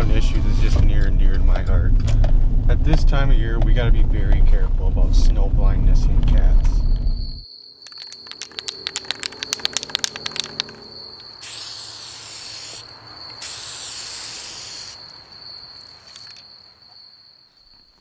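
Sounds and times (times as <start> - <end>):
steady high tone: 5.6 - 18.0
spray can ball rattling: 7.8 - 12.8, 13.4 - 15.0
spray paint hissing: 7.8 - 15.1.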